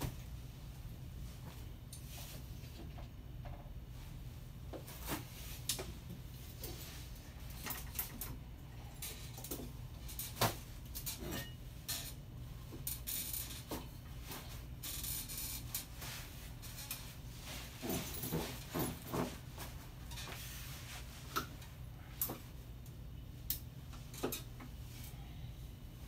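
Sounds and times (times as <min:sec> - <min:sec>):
low steady hum: 0:00.0 - 0:26.0
chair frame clicks and creaks: 0:07.4 - 0:20.5, 0:23.5 - 0:24.8
clothing rustling: 0:12.5 - 0:22.7.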